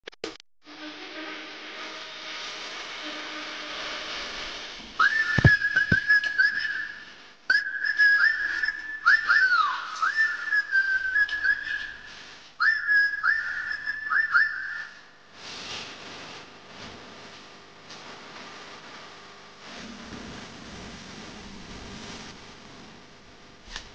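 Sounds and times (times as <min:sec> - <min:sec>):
low hum with hiss: 0:00.7 - 0:23.9
high whistling: 0:05.0 - 0:15.2.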